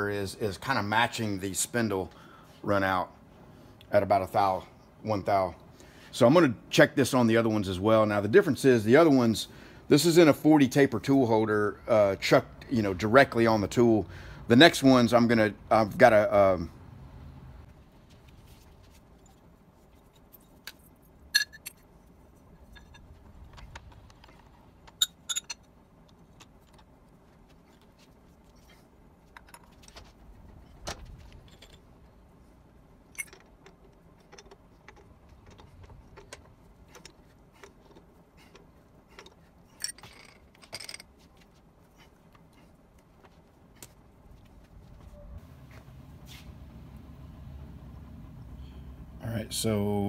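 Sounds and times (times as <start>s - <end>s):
light metallic clinks and rattles: 20.1s - 21.9s, 22.5s - 26.9s, 30.6s - 32.1s, 33.1s - 41.4s.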